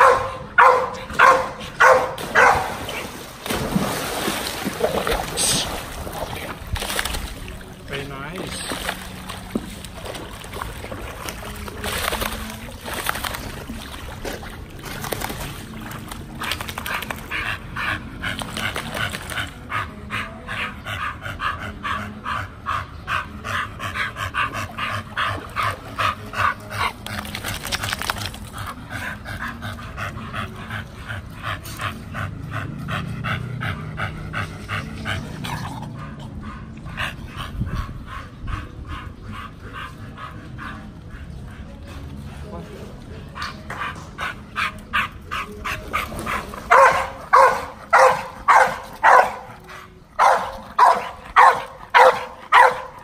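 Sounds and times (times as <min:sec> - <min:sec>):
dog panting: 0:15.9 - 0:53.0.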